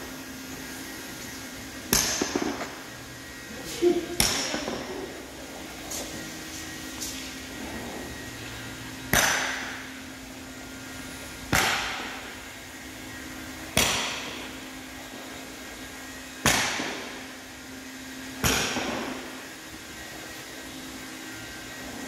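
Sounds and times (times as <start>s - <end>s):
hammer blows ringing in echoing room: 1.8s - 2.8s, 3.8s - 5.2s, 9.0s - 10.0s, 11.4s - 12.4s, 13.6s - 14.6s, 16.4s - 17.3s, 18.4s - 19.4s.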